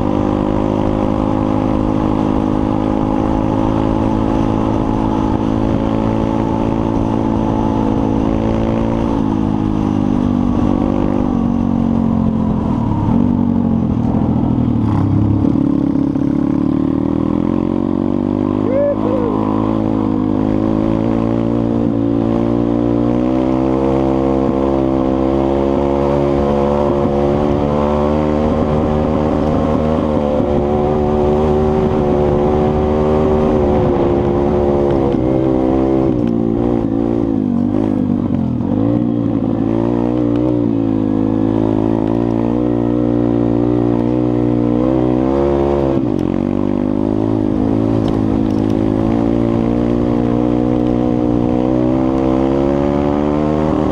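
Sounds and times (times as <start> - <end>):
motorbike engine running: 0.0 - 22.6.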